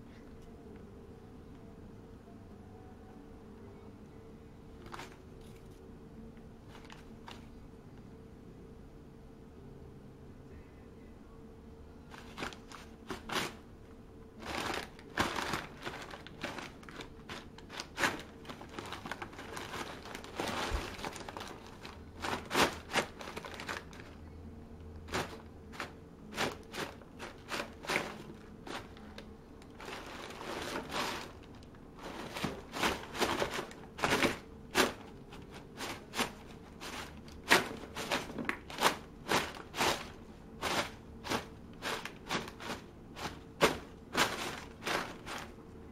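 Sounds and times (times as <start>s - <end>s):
wrapping paper crinkling: 14.4s - 24.2s, 25.1s - 45.6s.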